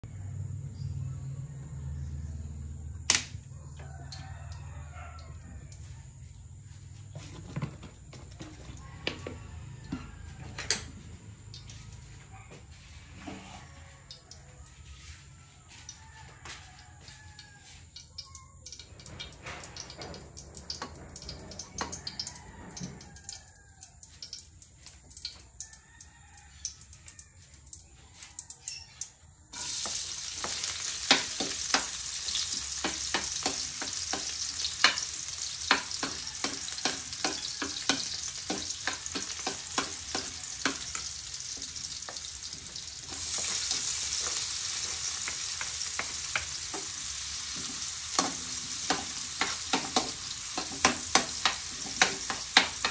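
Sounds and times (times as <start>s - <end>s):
food sizzling in hot oil: 18.2s - 25.4s, 29.5s - 52.9s
metal spoon scraping wok: 29.6s - 52.9s.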